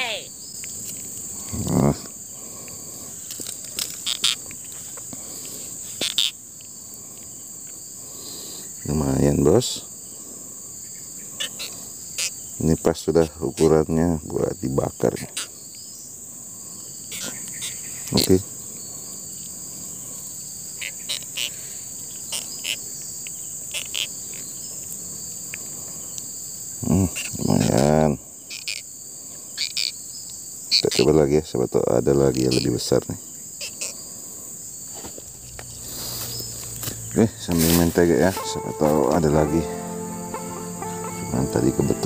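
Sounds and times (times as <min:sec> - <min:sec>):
high-pitched insect chorus: 0:00.0 - 0:42.0
short rustles: 0:34.9 - 0:38.0.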